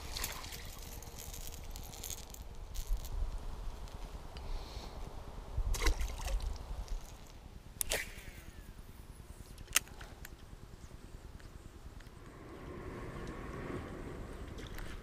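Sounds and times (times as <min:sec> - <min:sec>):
small water splash: 0:05.7 - 0:08.2.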